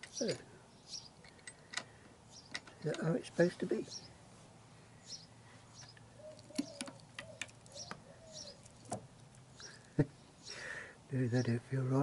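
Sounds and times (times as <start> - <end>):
small birds chirping: 0.0 - 12.0
pigeon cooing: 6.1 - 8.7.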